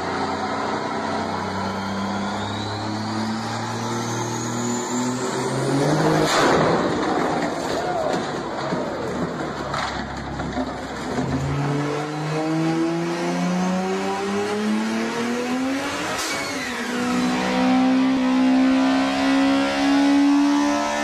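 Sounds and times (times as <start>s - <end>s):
car engine revving: 0.0s - 7.6s, 11.3s - 21.0s
falling whine: 0.1s - 9.0s
engine blowing bang: 5.9s - 9.0s.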